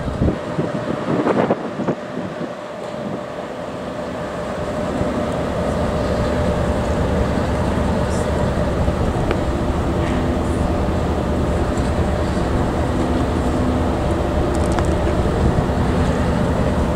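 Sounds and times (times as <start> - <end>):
locomotive rumbling and humming: 0.0 - 16.9.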